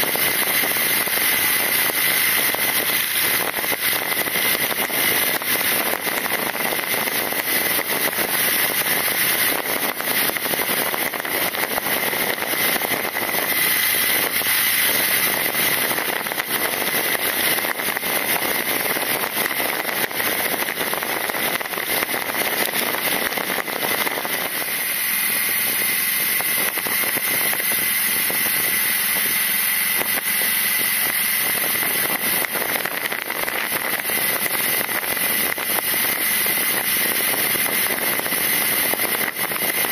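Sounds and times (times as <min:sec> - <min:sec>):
motorcycle engine and road noise: 0:00.0 - 0:39.9
wind rushing over microphone: 0:00.0 - 0:39.9.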